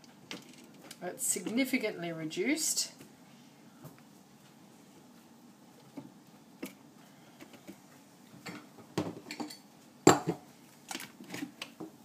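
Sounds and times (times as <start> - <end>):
utensils and containers clinking: 8.4 - 11.5.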